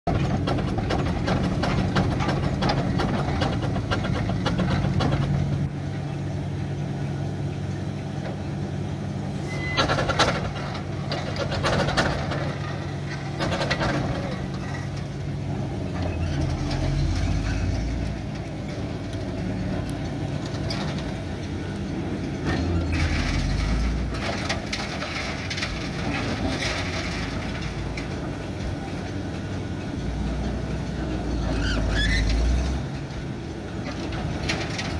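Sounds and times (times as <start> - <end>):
steam engine gearing clanking: 0.1 - 5.7
steam wagon driving over gravel: 0.1 - 34.9.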